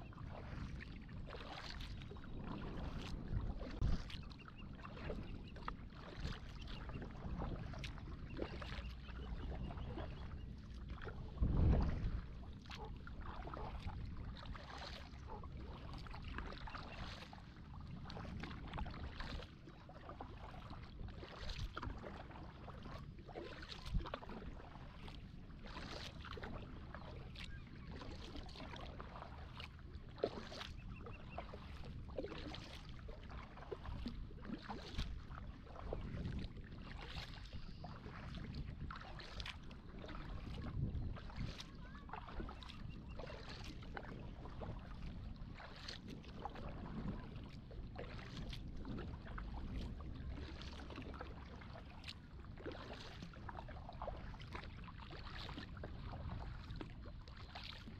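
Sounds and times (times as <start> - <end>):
paddle strokes splashing water: 0.0 - 57.9
low steady rumble: 9.1 - 14.2.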